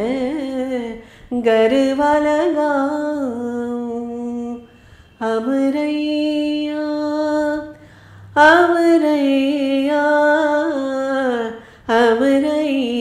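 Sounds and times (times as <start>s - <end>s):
woman singing unaccompanied: 0.0s - 13.0s
woman breathing: 1.0s - 1.3s, 4.6s - 5.2s, 7.7s - 8.4s, 11.6s - 11.9s.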